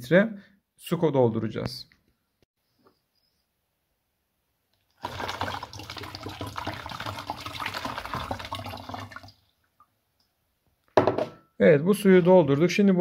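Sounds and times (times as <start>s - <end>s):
water pouring into plastic bottle: 4.9s - 9.6s.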